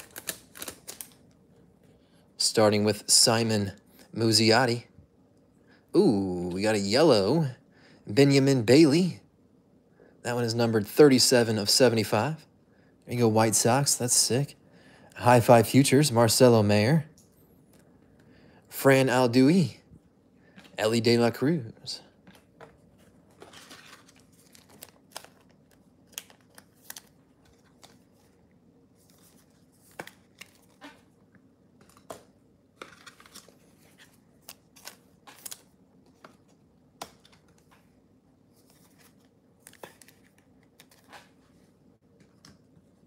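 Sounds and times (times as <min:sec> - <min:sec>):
foil wrapper rustling: 0:00.0 - 0:01.2
cards clicking and tapping: 0:34.4 - 0:37.9.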